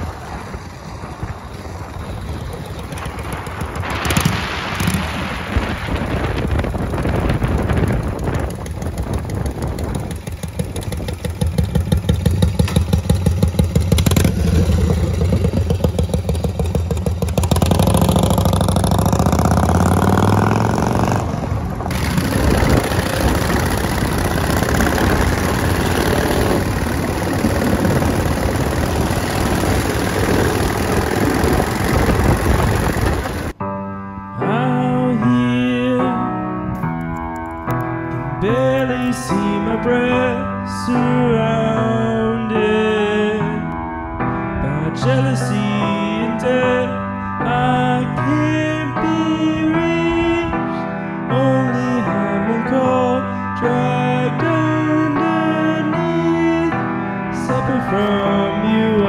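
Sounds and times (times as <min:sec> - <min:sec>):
motorcycle engine revving: 0:01.6 - 0:33.6.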